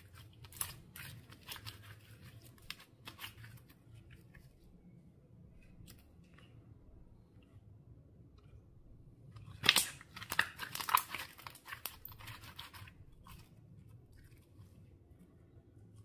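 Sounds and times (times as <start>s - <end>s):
slime crackling and popping: 9.5s - 13.2s.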